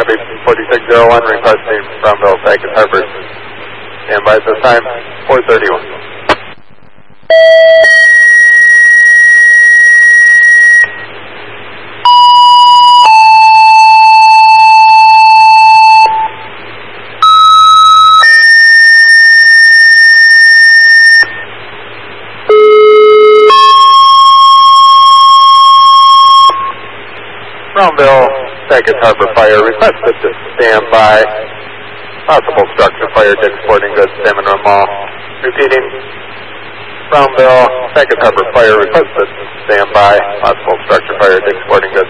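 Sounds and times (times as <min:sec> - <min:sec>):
radio hiss bursts: 0:00.0 - 0:07.3
low steady hum: 0:00.0 - 0:42.0
two-tone paging tones over radio: 0:12.1 - 0:16.4, 0:22.5 - 0:26.8.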